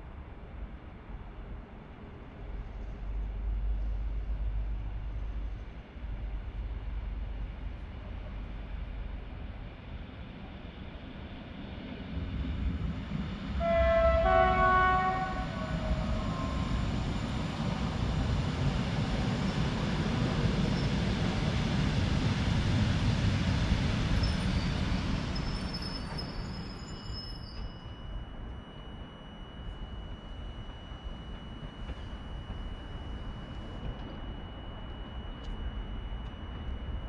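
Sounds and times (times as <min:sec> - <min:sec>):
train wheels rumbling on rail: 0:00.1 - 0:28.5, 0:30.6 - 0:35.6
train two-note horn: 0:13.6 - 0:16.9.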